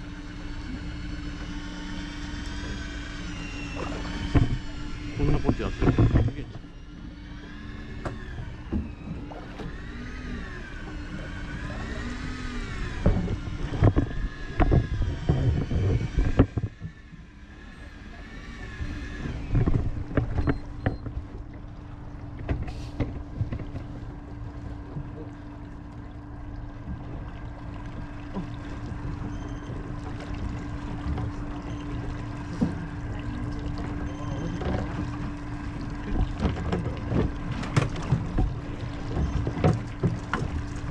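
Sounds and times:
outboard motor running: 0.0s - 40.9s
wind on microphone: 12.8s - 16.9s, 18.9s - 20.9s.

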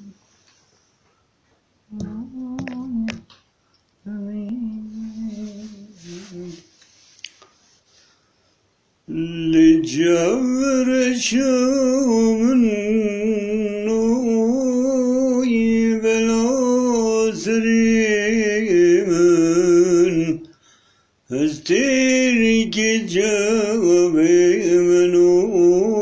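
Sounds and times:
man singing ornamented melody: 9.1s - 20.5s, 21.3s - 26.0s.

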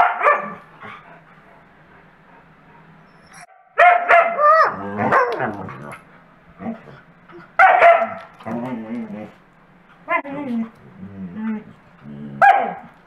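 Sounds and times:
dog yowling: 3.2s - 5.5s.

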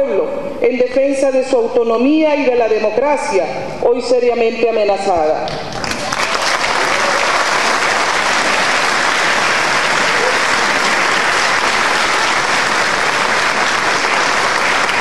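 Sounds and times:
crowd applauding: 5.7s - 15.0s.

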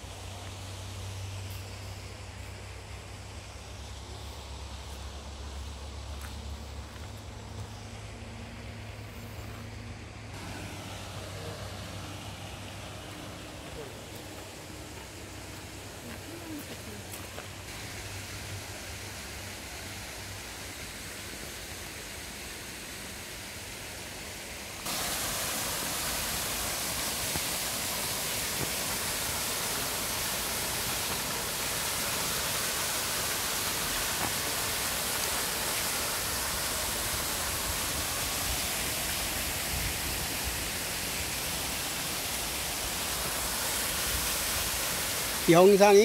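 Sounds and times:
soft even hiss: 0.0s - 46.0s
waterfall cascading over rocks: 10.3s - 46.0s.

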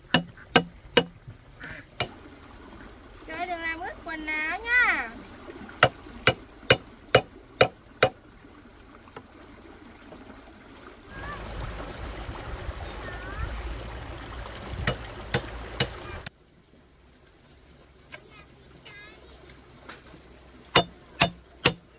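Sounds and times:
flowing water rushing: 0.0s - 21.9s
sharp knocks: 0.1s - 1.2s, 2.0s - 2.2s, 5.8s - 8.2s, 14.8s - 16.0s, 20.7s - 21.9s.

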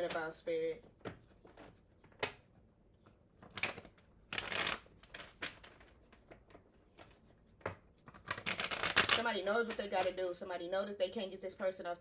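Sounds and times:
cards being shuffled: 3.4s - 10.2s.

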